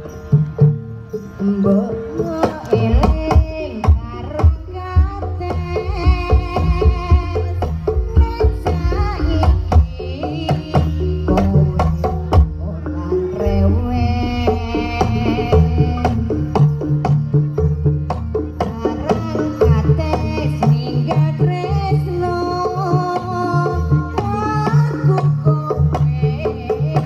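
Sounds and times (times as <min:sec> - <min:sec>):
low sustained tones: 0:00.0 - 0:20.1
hand drums beating: 0:00.3 - 0:27.0.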